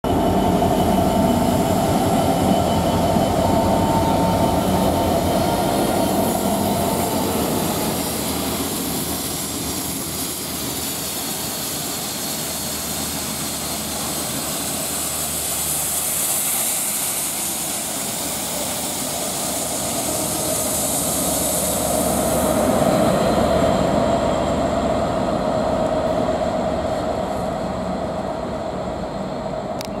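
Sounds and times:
diesel locomotive engine: 0:00.0 - 0:30.0
high hiss: 0:04.2 - 0:23.1.

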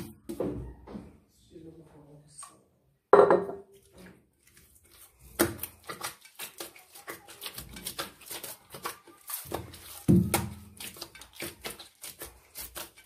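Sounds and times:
hands kneading soft dough: 0:03.7 - 0:13.0.

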